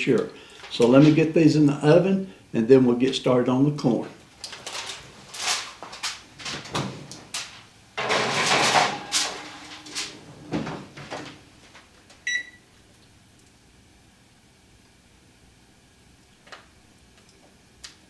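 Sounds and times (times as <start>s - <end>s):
baking pan clattering: 8.0s - 11.4s
oven door opening and shutting: 8.0s - 11.5s.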